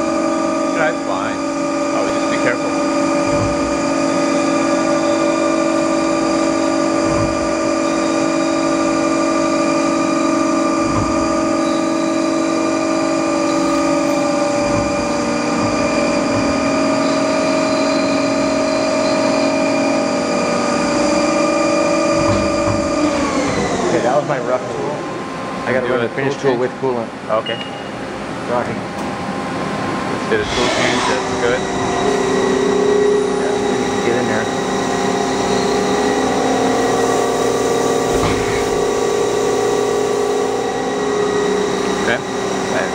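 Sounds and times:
tool cutting spinning workpiece: 0.0 - 24.4, 30.3 - 39.2
lathe spindle whine: 0.0 - 26.9, 29.1 - 42.9.

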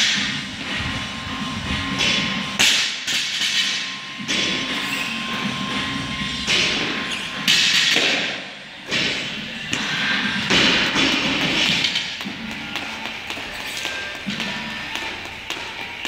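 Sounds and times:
jump rope slapping floor: 10.5 - 16.0.

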